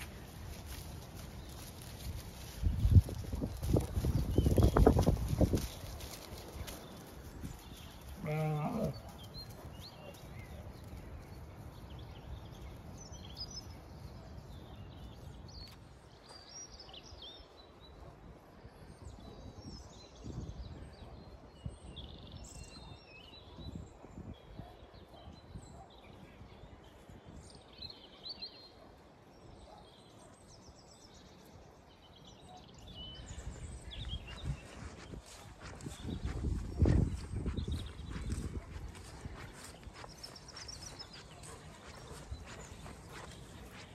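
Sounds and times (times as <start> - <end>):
wind buffeting microphone: 0.0 - 8.1, 18.3 - 22.7, 33.0 - 43.9
small birds chirping: 0.0 - 43.9.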